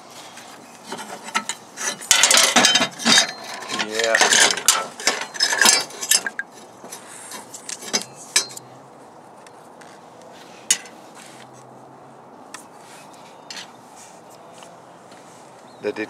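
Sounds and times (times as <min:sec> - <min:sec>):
metal clinks on sheet metal: 0:00.9 - 0:06.6, 0:07.8 - 0:08.6.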